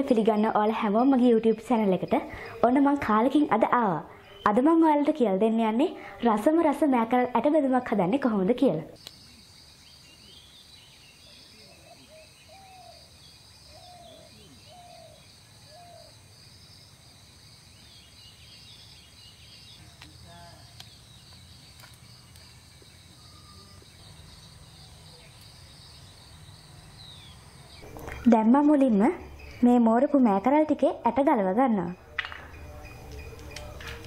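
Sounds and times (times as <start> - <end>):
bird calls: 9.0 - 16.9, 17.8 - 29.8, 31.8 - 34.0
high insect chorus: 9.0 - 31.0, 31.7 - 34.0.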